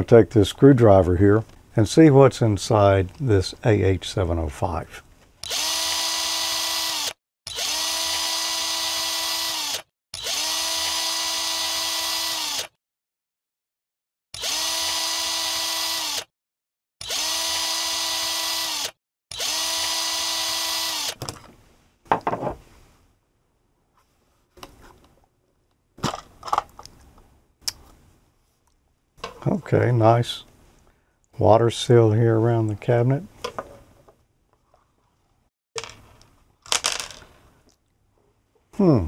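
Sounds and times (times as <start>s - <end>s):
electric screwdriver motor whine: 5.4s - 12.7s, 14.4s - 16.3s, 17.0s - 21.2s.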